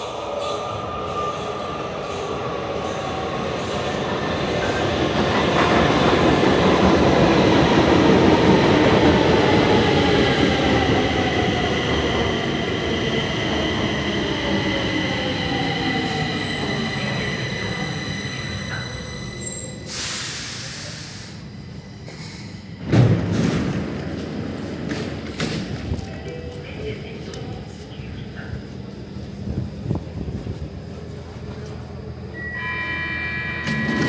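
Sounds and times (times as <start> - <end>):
metro train running: 0.0 - 34.0
high brake squeal: 17.5 - 20.6.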